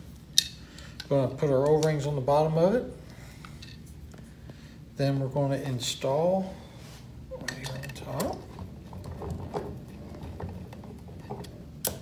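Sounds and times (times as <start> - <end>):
low room hum: 0.0 - 12.0.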